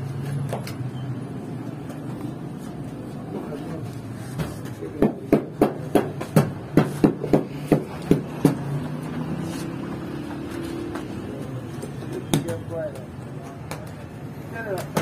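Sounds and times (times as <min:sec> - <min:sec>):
sharp knocks: 0:04.4 - 0:08.7.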